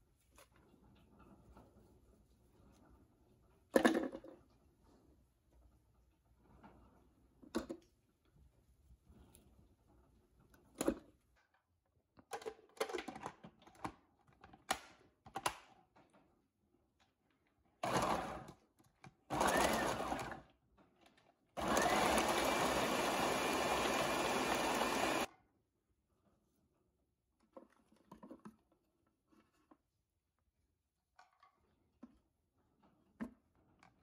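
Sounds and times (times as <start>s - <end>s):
food processor motor chopping: 17.8s - 18.5s, 19.3s - 20.5s, 21.6s - 25.3s.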